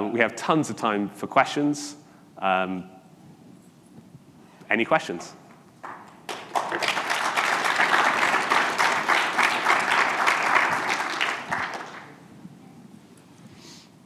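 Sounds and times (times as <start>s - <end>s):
audience applauding: 5.8s - 12.2s.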